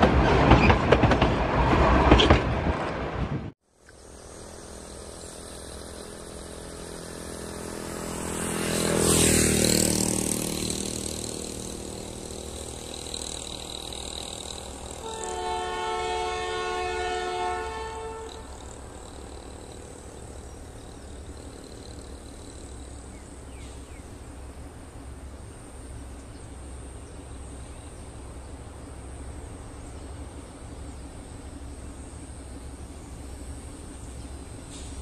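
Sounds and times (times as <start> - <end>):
vehicle passing by: 4.6 - 15.0
distant locomotive horn: 6.6 - 19.8.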